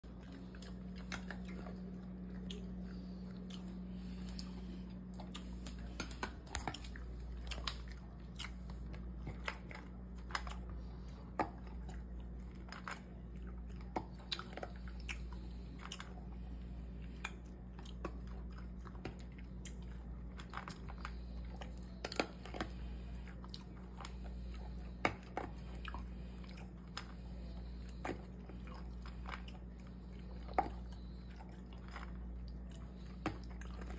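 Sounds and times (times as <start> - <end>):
steady low hum: 0.0 - 33.9
dog crunching dry kibble: 17.1 - 33.9.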